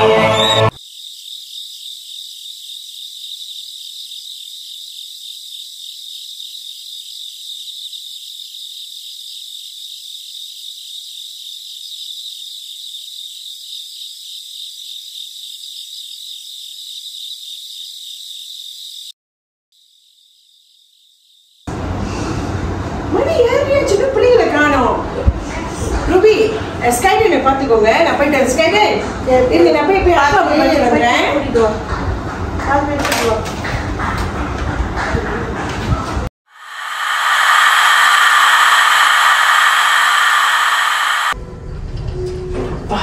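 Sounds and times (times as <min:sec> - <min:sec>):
crickets chirring: 0:00.7 - 0:19.2, 0:19.8 - 0:21.7, 0:36.5 - 0:41.4.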